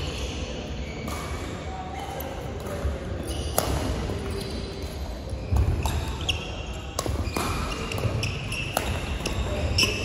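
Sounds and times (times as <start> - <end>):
court shoes squeaking: 0.0 - 10.0
racket hitting shuttlecock: 2.6 - 5.0, 5.6 - 10.0.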